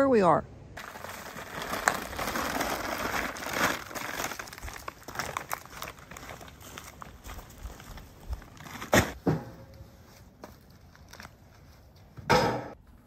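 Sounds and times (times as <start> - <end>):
plastic bag crinkling: 0.8 - 8.8
small crackles: 0.8 - 8.8
footsteps crunching dry leaves: 0.8 - 8.9.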